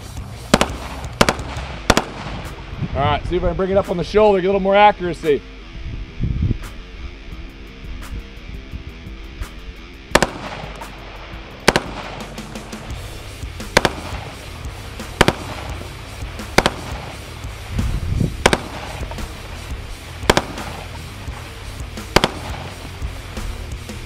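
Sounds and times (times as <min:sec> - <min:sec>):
rifle gunshots: 0:00.0 - 0:02.7, 0:10.1 - 0:17.8, 0:18.4 - 0:23.6.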